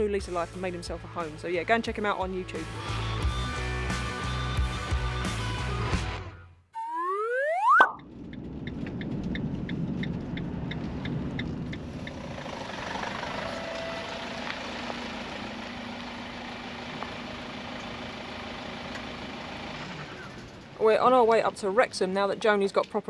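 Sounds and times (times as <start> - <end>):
rapid even ticking: 8.1 - 12.3
van engine running slowly: 8.1 - 20.8
tyres rolling on wet tarmac: 8.8 - 23.0.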